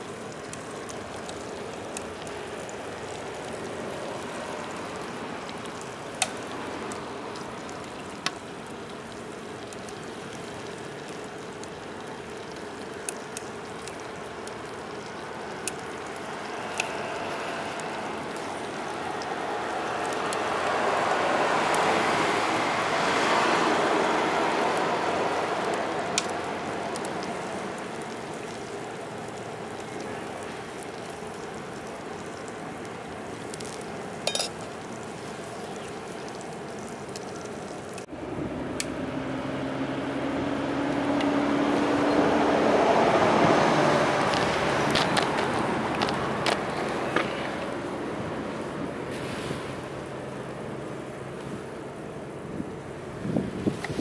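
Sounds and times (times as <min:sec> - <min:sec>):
food sizzling in a pan: 0:00.0 - 0:38.1
small clinks: 0:34.2 - 0:34.6.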